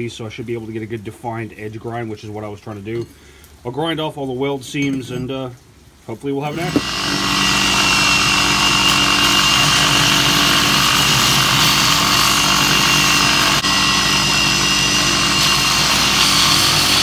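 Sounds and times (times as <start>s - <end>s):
belt grinder grinding steel: 6.4s - 17.0s
motor humming: 6.5s - 17.0s.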